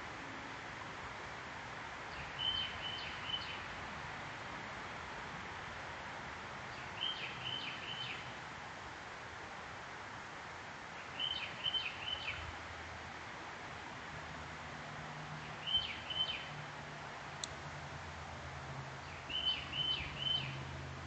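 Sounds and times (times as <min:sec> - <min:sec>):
outdoor background hiss: 0:00.0 - 0:21.0.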